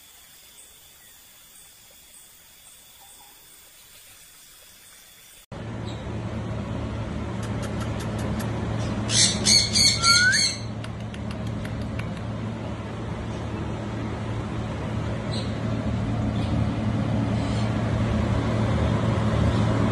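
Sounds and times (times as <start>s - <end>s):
steady low hum: 5.5s - 19.9s
budgerigar squawking chirps: 9.1s - 10.7s.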